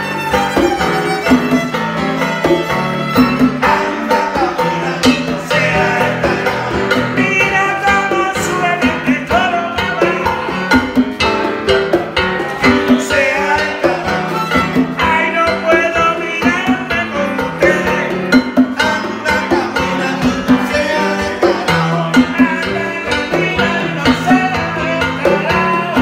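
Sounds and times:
violin melody with vibrato: 0.0s - 5.0s, 13.1s - 16.0s
electronic keyboard: 0.0s - 26.0s
steady drum beat: 0.0s - 26.0s.

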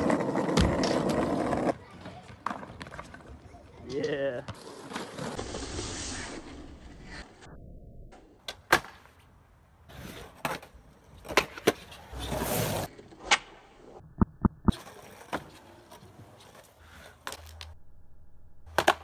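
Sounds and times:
skateboard wheels rolling on concrete: 0.0s - 7.5s, 8.2s - 14.0s, 14.7s - 17.8s, 18.6s - 19.0s
skateboard pops and clacks: 8.4s - 9.1s, 18.7s - 19.0s.

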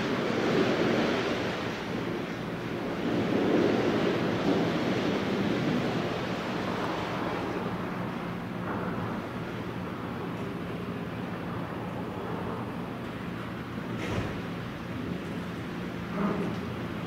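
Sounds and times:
wind on microphone: 0.0s - 13.0s.

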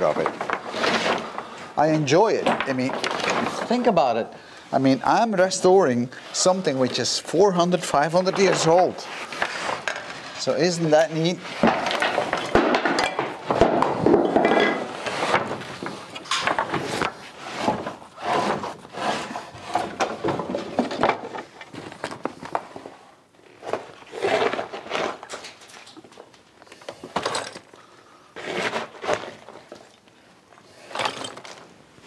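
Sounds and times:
wooden planks clattering: 0.0s - 5.5s, 6.4s - 23.0s, 30.8s - 31.7s
shovel scraping rubble: 28.4s - 29.8s
debris rattling into bag: 30.8s - 31.7s.

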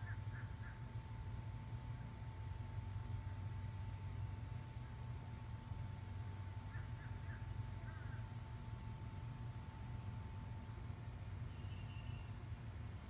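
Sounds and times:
steady low hum: 0.0s - 13.0s
faint bird chirps: 10.4s - 12.9s.

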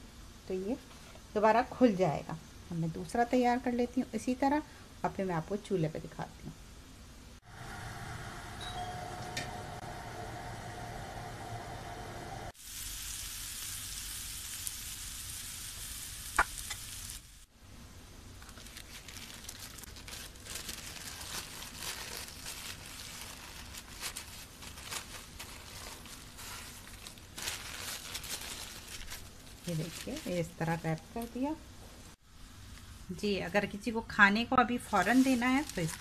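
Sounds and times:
wrap sizzling on grill pan: 11.4s - 17.5s
paper crinkling: 18.4s - 30.9s, 34.9s - 36.0s.

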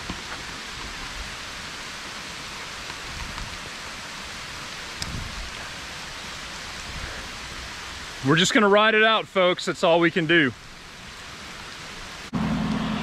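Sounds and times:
heavy rain through trees: 0.0s - 13.0s
raindrops ticking: 2.0s - 6.1s.

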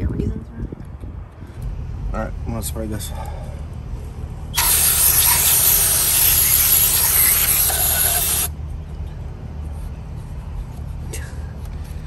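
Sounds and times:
aerosol spray hissing: 4.6s - 8.5s.

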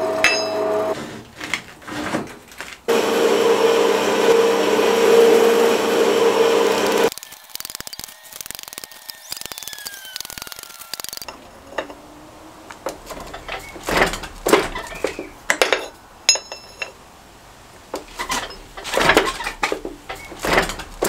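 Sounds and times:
steel pieces clattering: 7.1s - 12.0s, 13.0s - 17.0s, 18.1s - 21.0s
metallic knocks and clinks: 13.0s - 17.0s.

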